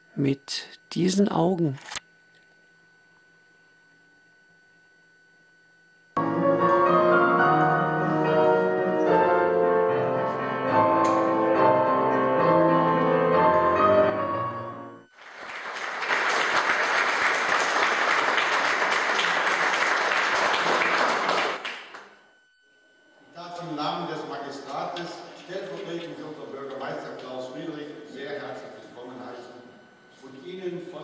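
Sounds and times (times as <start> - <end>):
audience applauding: 15.1 - 22.2.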